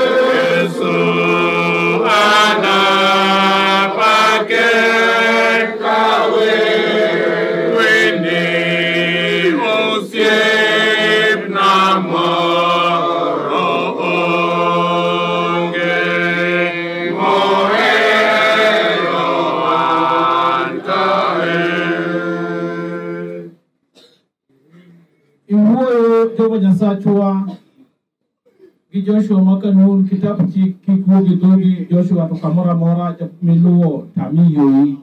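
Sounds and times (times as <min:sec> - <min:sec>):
congregation singing: 0:00.0 - 0:23.5.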